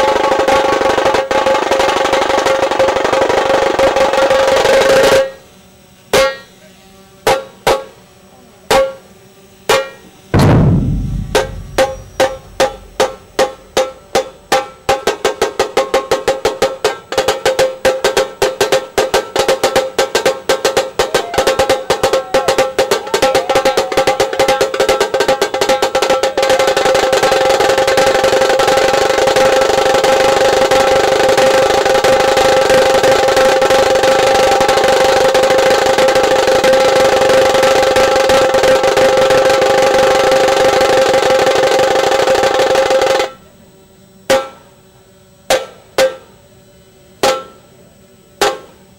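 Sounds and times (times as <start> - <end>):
drums accelerating into a roll: 10.4 - 15.0.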